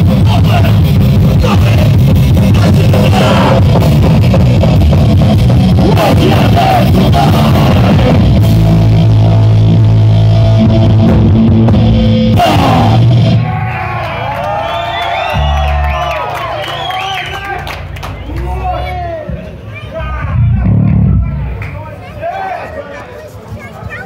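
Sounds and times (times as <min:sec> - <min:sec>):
live rock band playing: 0:00.0 - 0:13.4
crowd cheering and whooping: 0:12.4 - 0:19.4.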